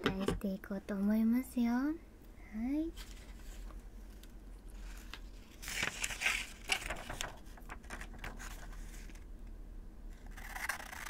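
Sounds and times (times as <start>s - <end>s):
paper rustling: 3.0s - 9.2s
scissors snipping paper: 10.2s - 11.0s.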